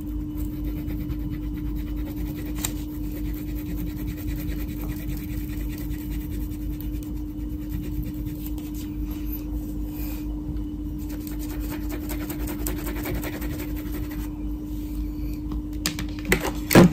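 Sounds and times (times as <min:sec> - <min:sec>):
crayon rubbing on paper: 0:00.0 - 0:08.9, 0:11.0 - 0:14.3
steady low hum: 0:00.0 - 0:16.9.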